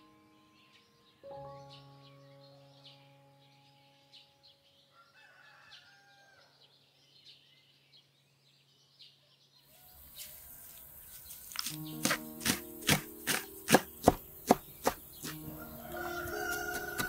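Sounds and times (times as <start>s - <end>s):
small birds chirping: 0.0s - 17.0s
rooster crowing: 4.9s - 6.6s, 15.4s - 17.0s.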